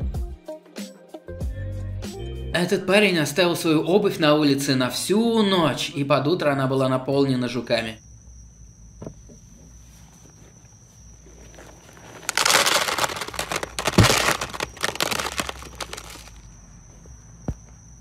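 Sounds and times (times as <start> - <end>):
millipedes rattling in shoe: 11.2 - 16.4.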